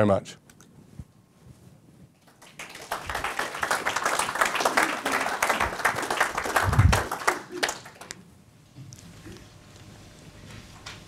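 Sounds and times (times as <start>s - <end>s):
audience applauding: 2.2s - 8.2s.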